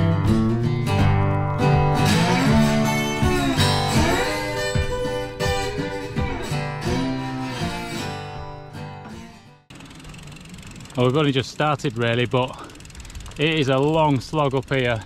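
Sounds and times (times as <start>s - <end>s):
guitar-led instrumental music: 0.0s - 9.7s.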